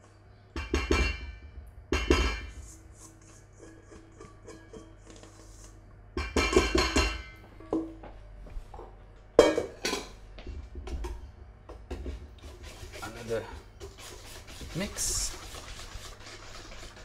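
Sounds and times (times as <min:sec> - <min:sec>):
saucepan scraping metal bowl: 0:12.4 - 0:17.0
whisk stirring batter: 0:12.4 - 0:17.0.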